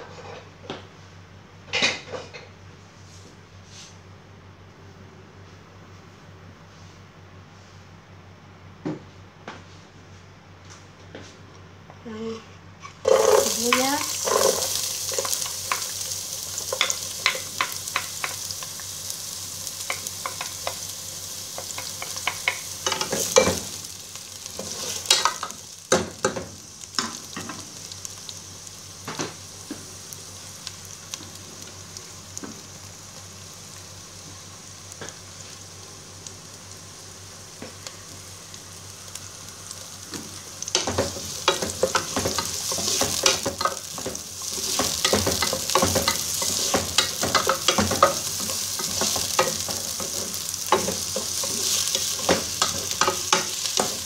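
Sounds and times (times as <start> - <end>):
onions sizzling in oil: 12.8 - 54.0
wooden spoon scraping a pot: 13.0 - 15.9.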